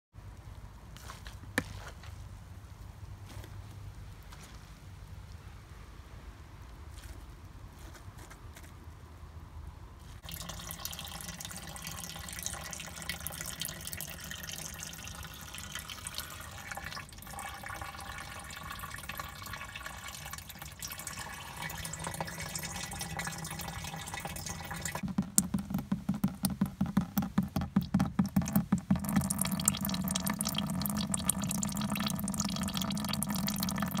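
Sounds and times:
juice pouring: 10.2 - 34.0
juice trickling into vessel: 10.2 - 34.0
splashing drips: 10.2 - 34.0.

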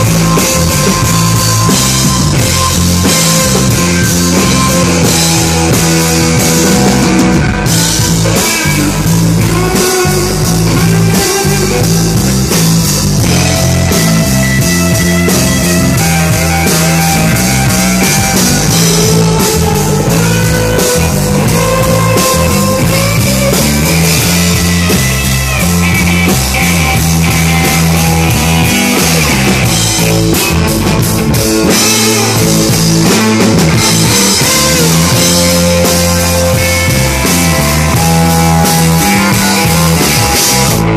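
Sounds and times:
drum kit with cymbals: 0.0 - 40.9
electric guitar: 0.0 - 40.9
keyboard: 0.0 - 40.9.

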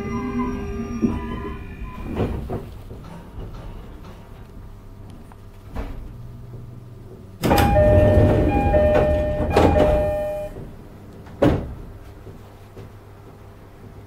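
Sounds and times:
train doors sliding open: 0.0 - 13.0
two-note door chime: 7.5 - 10.6.

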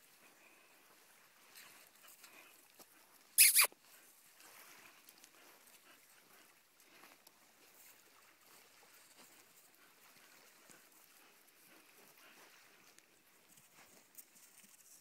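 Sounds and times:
dog yelping: 3.4 - 3.7.

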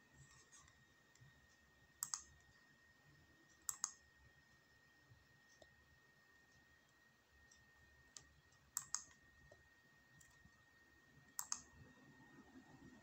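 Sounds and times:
faint high whine: 0.0 - 13.0.

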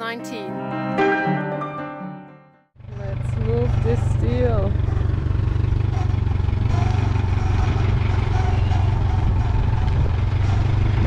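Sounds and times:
forklift engine running: 2.8 - 11.0.

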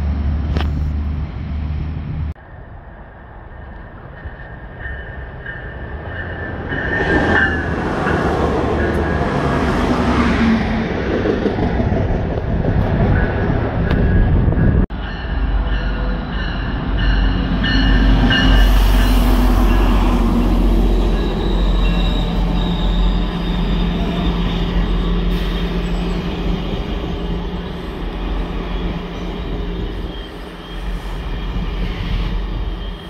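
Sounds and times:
train rumbling past: 0.0 - 33.0
high wheel squeal: 15.9 - 33.0.

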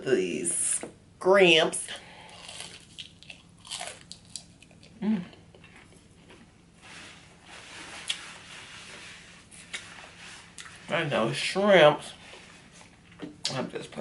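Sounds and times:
crunchy chewing: 2.2 - 6.5.

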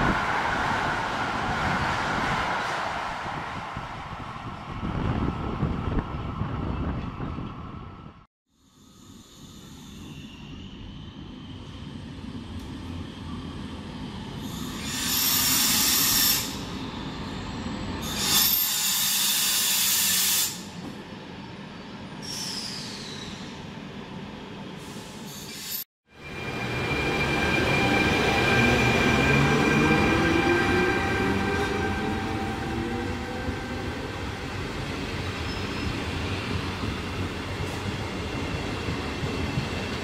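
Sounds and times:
train wheel and brake squeal: 8.7 - 11.5, 14.3 - 20.9, 22.2 - 23.6, 24.8 - 33.8, 35.4 - 36.3.

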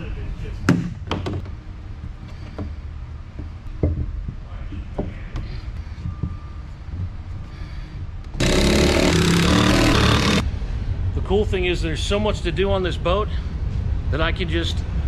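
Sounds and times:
motor-driven power tool running: 8.4 - 10.4.

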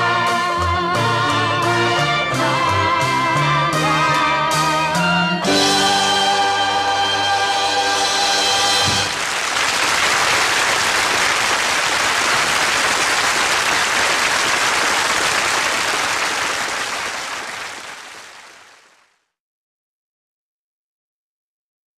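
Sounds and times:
audience applause: 8.8 - 19.2.

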